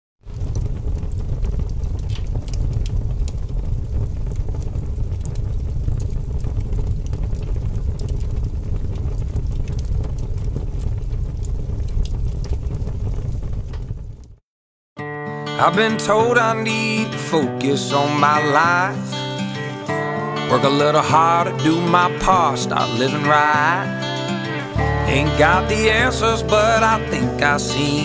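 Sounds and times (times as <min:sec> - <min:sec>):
faint crackles and ticks: 0:00.2 - 0:14.4
steady low rumble: 0:00.2 - 0:14.4.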